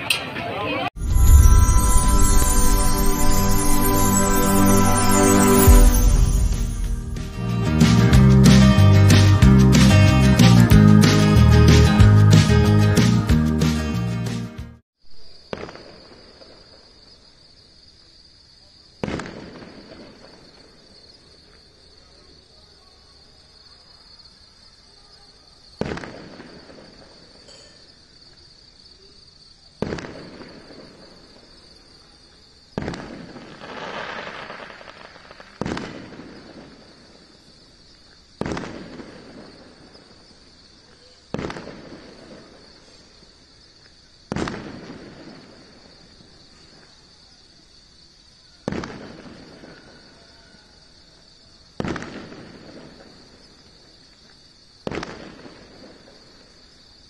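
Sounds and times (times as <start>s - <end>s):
firework crackling: 1.0s - 9.2s, 32.8s - 37.4s, 41.3s - 43.1s
firework shells bursting: 32.8s - 36.6s.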